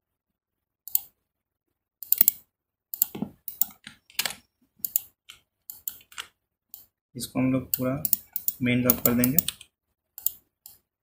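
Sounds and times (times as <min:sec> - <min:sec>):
mouse and keyboard clicking: 0:02.0 - 0:02.4, 0:03.0 - 0:06.9, 0:07.7 - 0:10.8.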